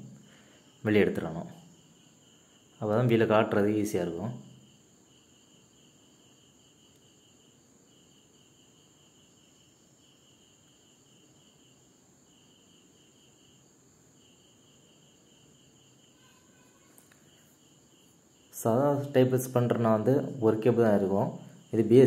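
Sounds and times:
faint high whine: 0.0 - 22.0
insect chirping: 0.0 - 22.0.

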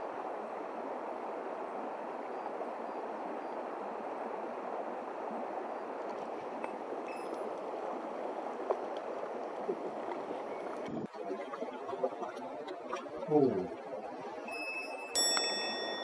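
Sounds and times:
stream running over stones: 0.0 - 16.0
faint ticks: 6.0 - 11.0, 14.5 - 16.0.

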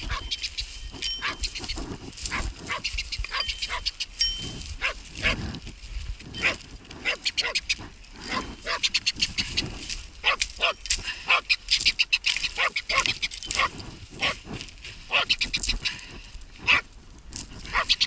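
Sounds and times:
dog barking quickly: 2.3 - 3.9, 4.8 - 5.4, 6.4 - 7.6, 8.3 - 8.9, 10.2 - 11.5, 12.6 - 14.4, 15.1 - 15.4, 16.6 - 16.9, 17.7 - 18.0.

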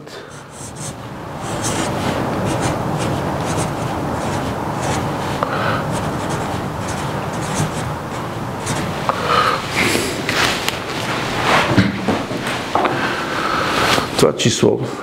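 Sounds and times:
marker scratching on whiteboard: 0.2 - 11.7
marker squeak: 0.6 - 9.2.

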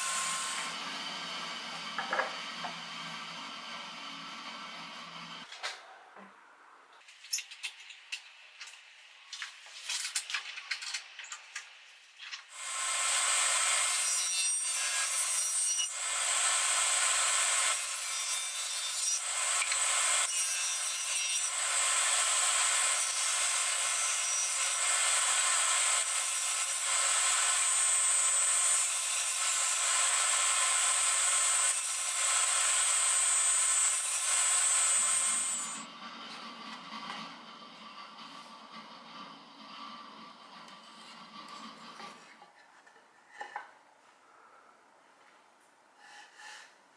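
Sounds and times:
table saw cutting wood: 0.0 - 5.5, 12.5 - 35.9.

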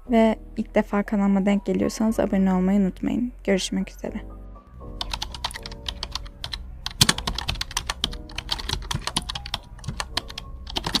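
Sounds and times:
keyboard keystroke clicks: 5.0 - 11.0.

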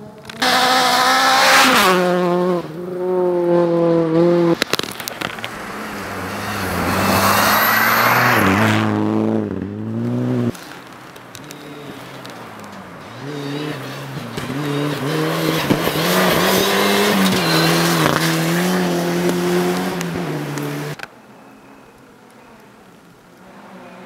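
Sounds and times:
rally car engine at high revs: 0.0 - 10.6, 13.0 - 21.1
rush of tyres on snow: 0.0 - 24.0.

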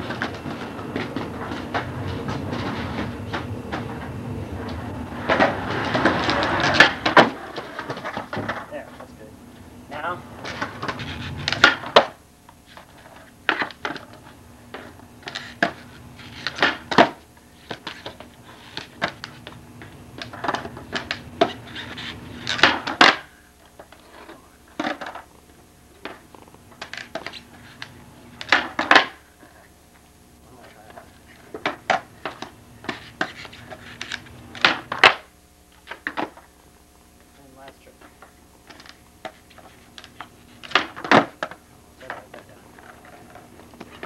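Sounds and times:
skateboard wheels rolling: 0.0 - 9.1, 10.2 - 29.8, 30.6 - 36.6, 38.0 - 44.0
skateboard clacking on concrete: 4.6 - 8.7, 10.4 - 25.3, 26.0 - 29.7, 30.9 - 36.5, 37.9 - 44.0.

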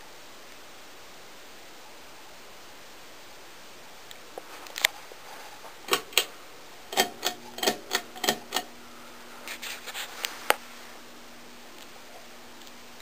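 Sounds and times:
fan motor hum: 4.4 - 13.0
pull-chain switch clicking: 5.9 - 6.3, 6.9 - 8.7.

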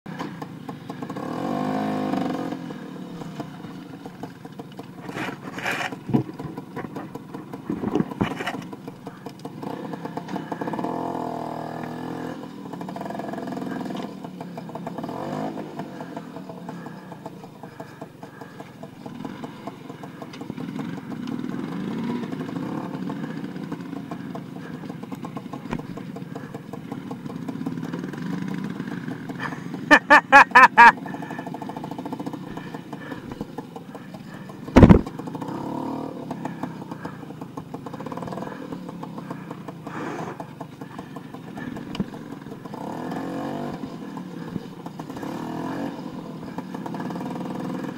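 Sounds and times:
scooter engine revving: 0.1 - 47.9
knocks and rattles from bumps: 3.3 - 9.5, 23.7 - 28.1, 31.4 - 35.4.

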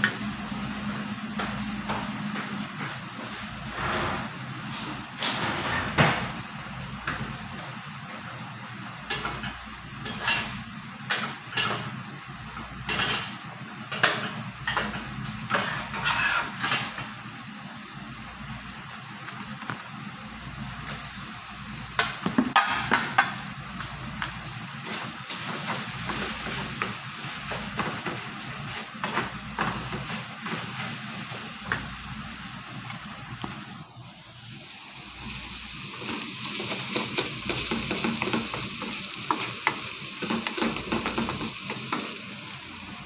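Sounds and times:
steady hiss: 22.9 - 43.0.

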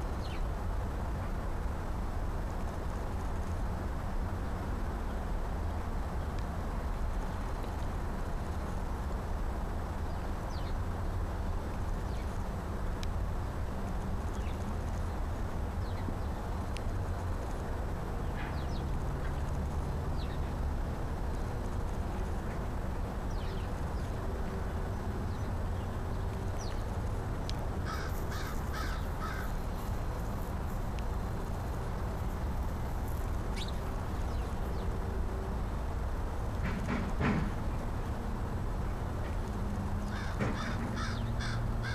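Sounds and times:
crow cawing: 27.8 - 29.6, 40.1 - 41.9.

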